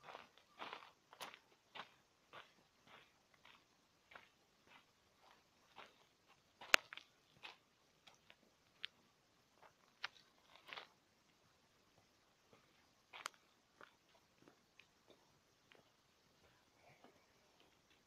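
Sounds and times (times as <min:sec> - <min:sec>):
footsteps on gravel: 0:00.0 - 0:09.0, 0:09.6 - 0:11.0.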